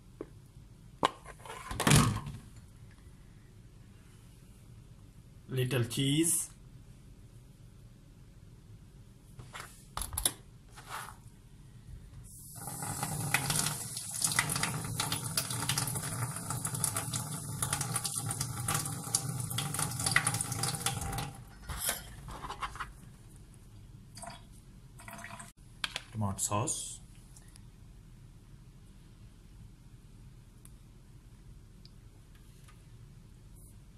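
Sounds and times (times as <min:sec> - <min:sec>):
water running from a tap: 0:12.4 - 0:21.4.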